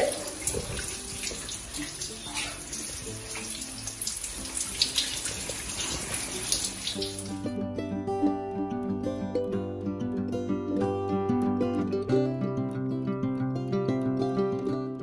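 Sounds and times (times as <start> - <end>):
shower spray running: 0.0 - 7.4
music: 0.0 - 15.0.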